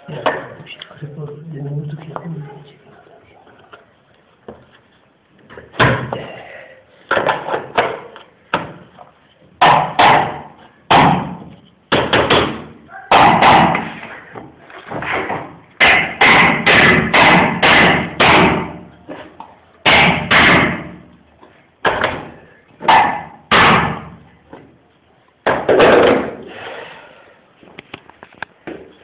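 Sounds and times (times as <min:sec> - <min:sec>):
hammer striking metal bar: 0:15.8 - 0:18.7.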